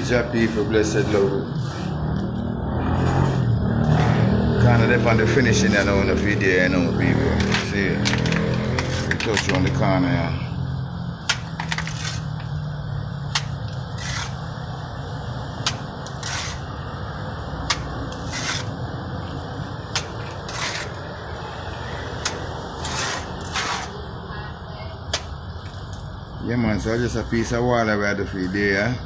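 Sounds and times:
trowel scraping cement: 2.9 - 6.3, 7.2 - 9.8, 11.3 - 12.4, 13.3 - 14.5, 15.6 - 16.7, 17.7 - 18.8, 20.0 - 21.1, 22.2 - 24.0.

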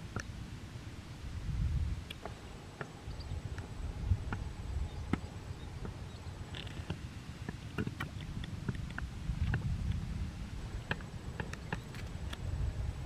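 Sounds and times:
wind rumble on microphone: 0.0 - 13.0.

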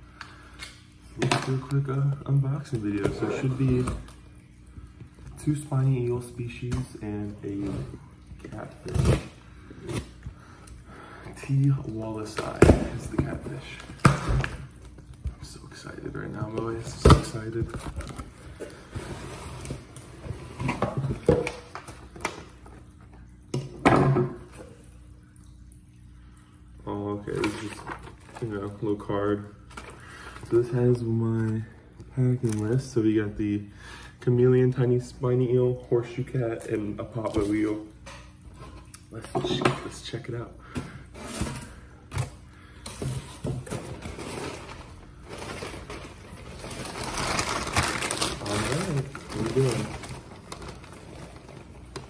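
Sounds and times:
packing material rustling: 43.7 - 52.0.

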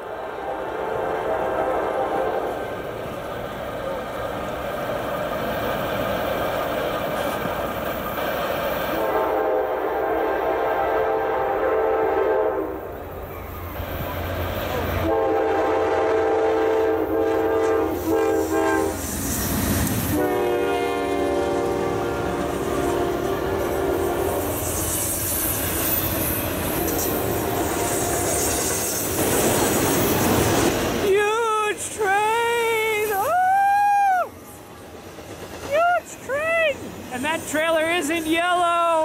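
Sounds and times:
locomotive horn blasts: 0.0 - 2.6, 9.0 - 12.8, 15.0 - 19.0, 20.1 - 24.6
freight cars rolling on rails: 1.0 - 9.6, 12.8 - 39.0.

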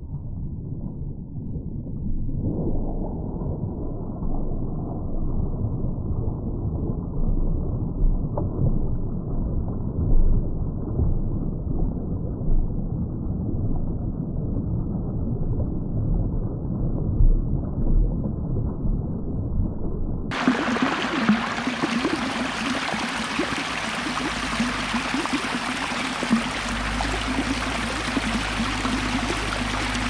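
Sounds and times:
muffled water rushing in ditch: 20.3 - 30.0
rushing stream: 20.3 - 30.0.

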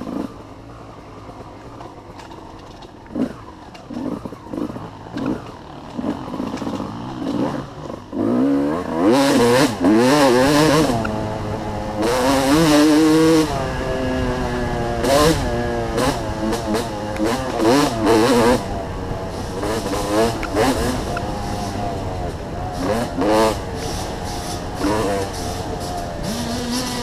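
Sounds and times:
dirt bike engine revving: 0.0 - 27.0.

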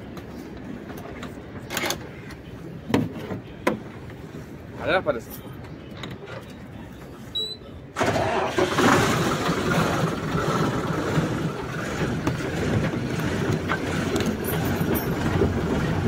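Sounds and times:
diesel engine rumbling: 0.0 - 16.0
diesel truck engine starting: 7.9 - 16.0.

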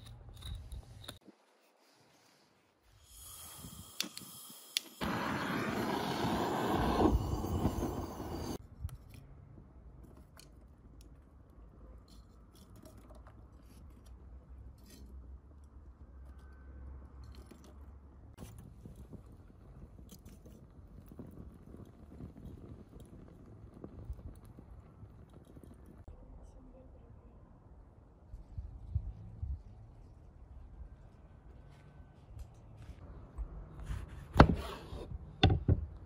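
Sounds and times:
gas torch hissing: 2.9 - 8.6
torch igniter clicks: 3.9 - 8.4.

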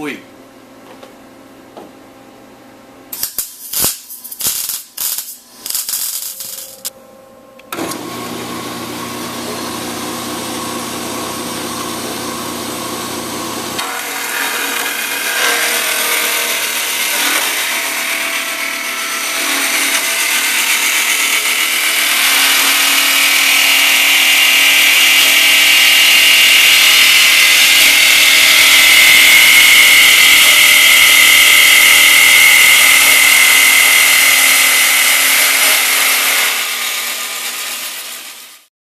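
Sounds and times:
bandsaw cutting metal tubing: 3.2 - 6.9, 7.7 - 38.7
bandsaw motor hum: 6.2 - 38.7.

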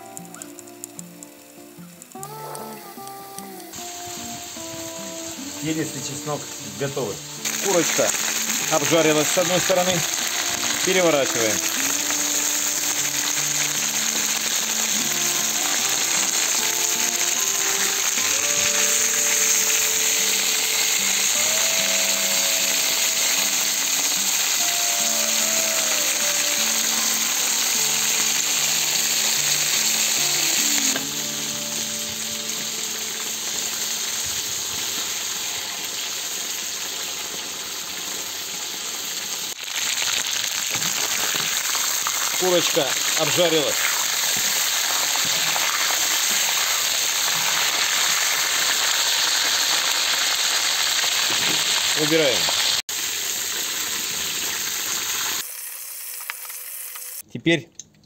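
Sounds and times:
quiet background melody: 0.0 - 34.4
chicken sizzling in hot oil: 0.0 - 57.3.

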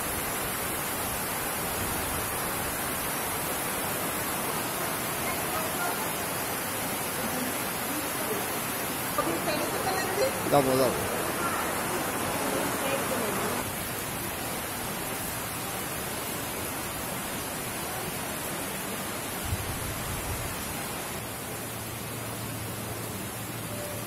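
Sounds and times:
heavy rain falling: 0.0 - 24.0.

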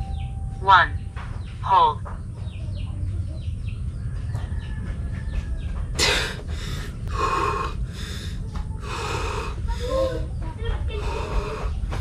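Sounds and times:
low rumble: 0.0 - 12.0
man breathing deeply: 6.0 - 10.3, 10.9 - 12.0.

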